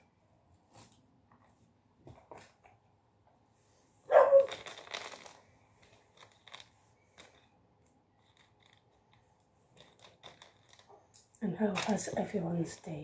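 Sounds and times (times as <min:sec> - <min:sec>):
puzzle pieces rustling: 0:04.2 - 0:07.6, 0:08.2 - 0:11.0
small clicks of puzzle pieces: 0:04.4 - 0:12.1.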